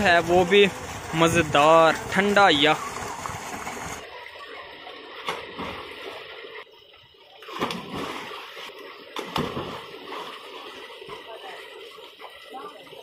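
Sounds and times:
people splashing in water: 0.0s - 6.6s, 7.3s - 13.0s.

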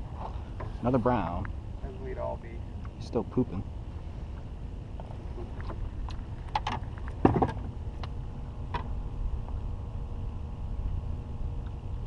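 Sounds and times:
thump in a rowboat: 6.6s - 7.7s.

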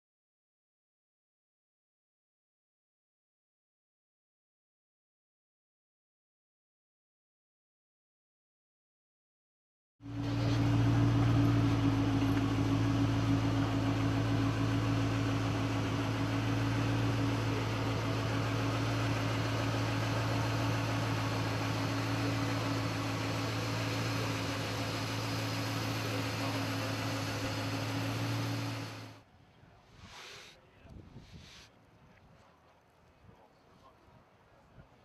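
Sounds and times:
low mechanical hum: 10.1s - 29.3s.

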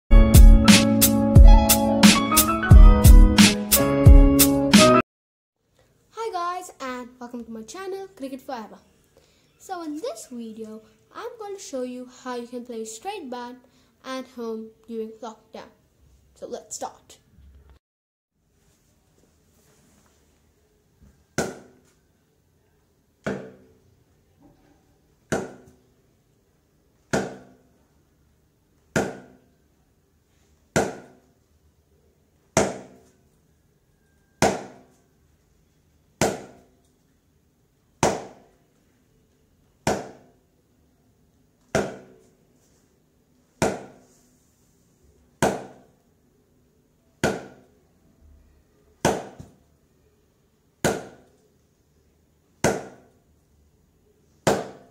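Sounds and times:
cricket bat striking ball: 21.4s - 21.8s, 25.3s - 25.7s, 27.1s - 27.6s, 29.0s - 29.4s, 30.8s - 31.2s, 34.4s - 34.9s, 36.2s - 36.7s, 38.0s - 38.4s, 39.9s - 40.3s, 41.7s - 42.2s, 43.6s - 44.0s, 45.4s - 45.8s, 47.2s - 47.7s, 49.0s - 49.6s, 50.8s - 51.2s, 52.6s - 53.0s, 54.5s - 54.9s.

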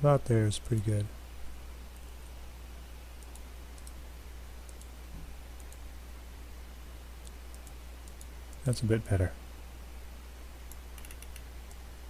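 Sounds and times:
electrical hum and hiss: 0.0s - 12.0s
computer mouse clicks: 3.2s - 4.0s, 4.6s - 5.0s, 5.6s - 5.8s, 7.2s - 8.8s, 10.7s - 11.8s.

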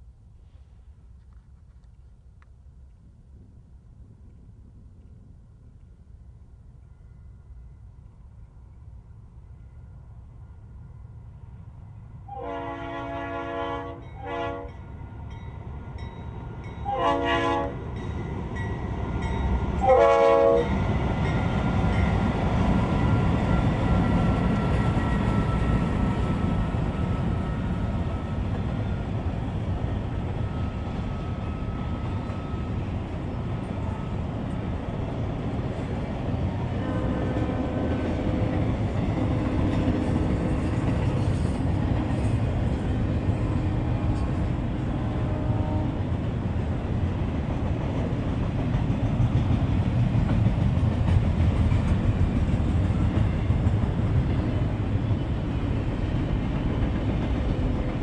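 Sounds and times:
freight train rumbling on rails: 3.3s - 58.0s
locomotive air horn: 12.3s - 14.8s, 16.8s - 17.8s, 19.8s - 20.7s, 45.0s - 46.0s.

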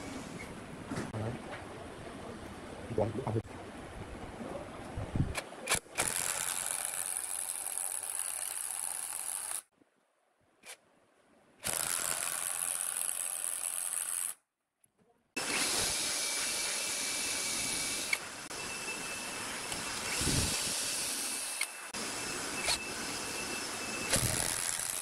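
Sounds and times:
cordless drill driving screws: 15.4s - 18.2s, 24.1s - 25.0s.

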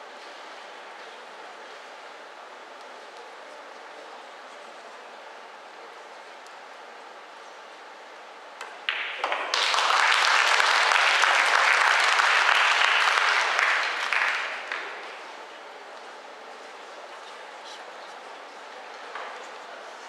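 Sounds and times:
audience applauding: 8.9s - 15.3s.

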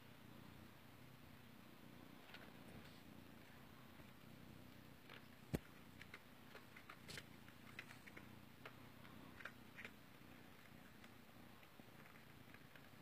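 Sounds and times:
cat chewing food: 5.0s - 13.0s.

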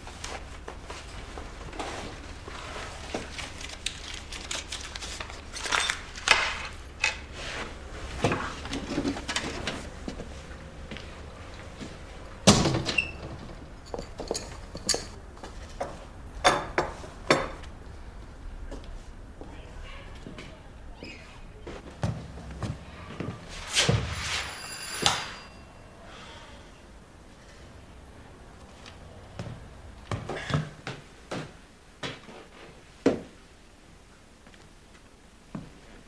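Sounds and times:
knocks and clatters of objects: 11.8s - 17.7s.

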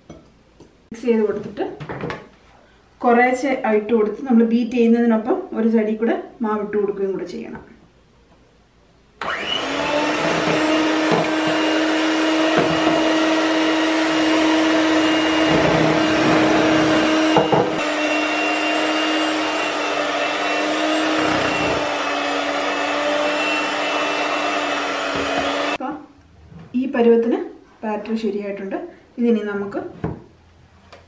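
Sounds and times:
electric hand mixer running: 9.2s - 25.8s.

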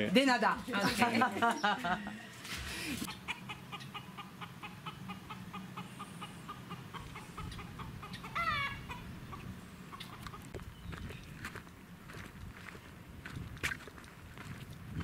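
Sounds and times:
chickens clucking: 3.0s - 10.7s.

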